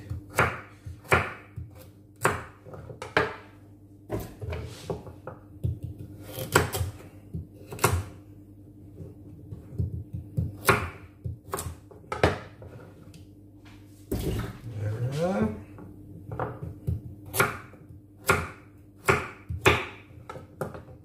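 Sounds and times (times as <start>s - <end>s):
knife chopping on wooden board: 0.0s - 3.5s, 4.1s - 8.2s, 9.4s - 12.8s, 16.3s - 21.0s.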